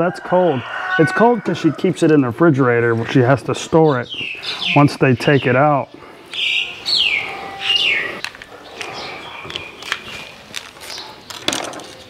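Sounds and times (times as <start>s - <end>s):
bird whistling calls: 6.3s - 10.3s.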